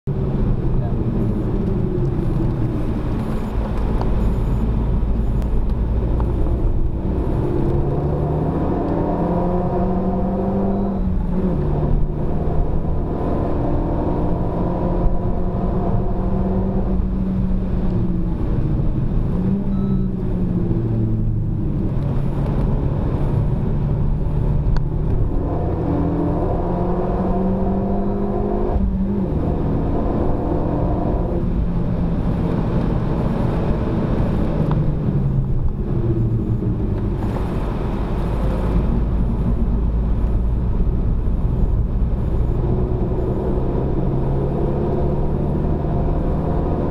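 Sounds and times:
car engine accelerating: 0.1s - 46.9s.

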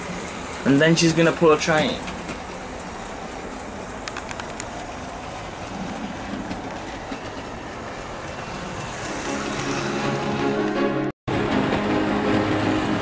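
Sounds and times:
model train running on rails: 0.0s - 13.0s
clicks: 4.0s - 4.9s.

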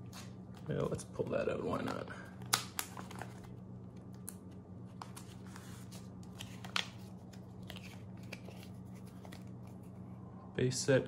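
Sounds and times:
faint low hum: 0.0s - 11.0s
paper snap: 2.4s - 3.3s
plastic and paper rustling: 4.9s - 10.0s.

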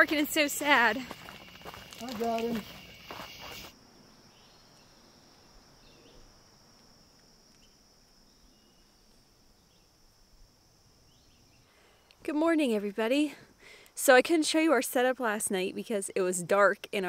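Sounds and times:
crickets chirping: 0.0s - 17.0s
high insect drone: 0.0s - 17.0s
faint bird chirps: 2.7s - 6.3s, 7.6s - 10.0s.

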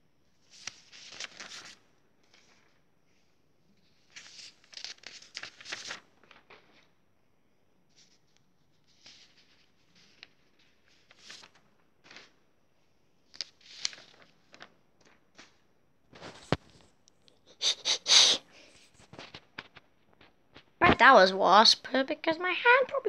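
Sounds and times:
paper sheets rustling: 0.4s - 7.0s, 7.9s - 12.5s, 13.2s - 17.0s, 18.6s - 21.0s.

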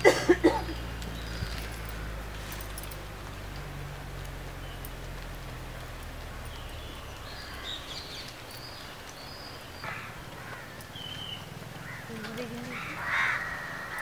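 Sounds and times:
birds chirping: 0.0s - 14.0s
harsh caw-like bird call: 9.8s - 14.0s.

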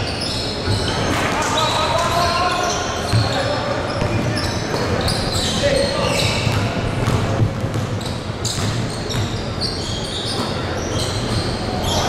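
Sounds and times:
sneakers squeaking on floor: 0.0s - 12.0s
basketball bouncing on hardwood: 6.5s - 8.0s.

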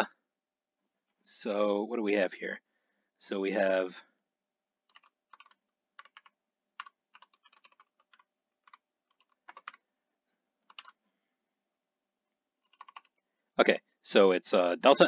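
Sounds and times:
computer keyboard typing: 4.8s - 9.8s, 10.6s - 11.0s, 12.6s - 13.2s.

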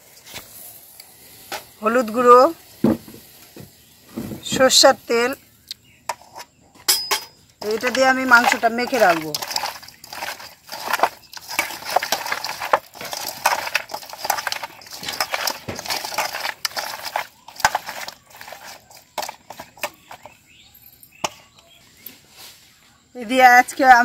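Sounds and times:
chicken mixed by hand in colander: 4.0s - 5.4s, 7.6s - 24.0s.

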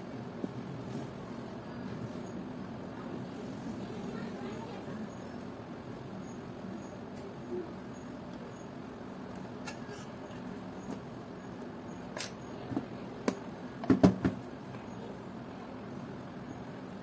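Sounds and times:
knocks and taps on workbench: 13.3s - 14.4s.

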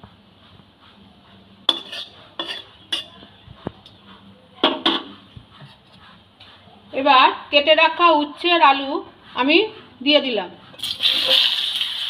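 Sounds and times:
metal spatula clinking on wok: 1.7s - 3.2s
seeds sizzling in hot oil: 10.8s - 12.0s.

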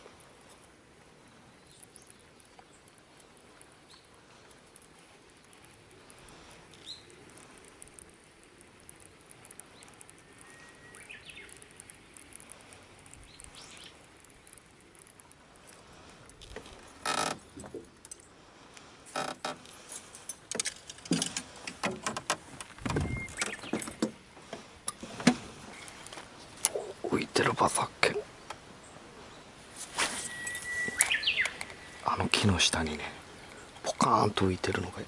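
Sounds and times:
faint chirps: 8.9s - 15.1s, 26.7s - 34.0s.

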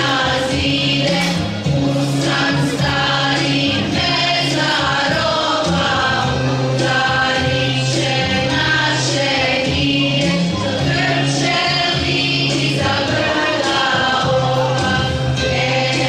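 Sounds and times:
women's choir singing: 0.0s - 16.0s.

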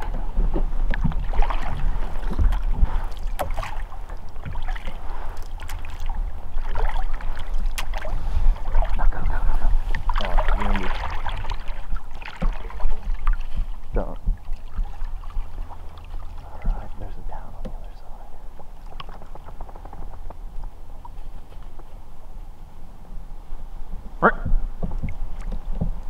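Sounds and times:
water splashing: 0.0s - 21.9s
boat and oars knocking: 0.0s - 22.1s, 24.0s - 26.0s.

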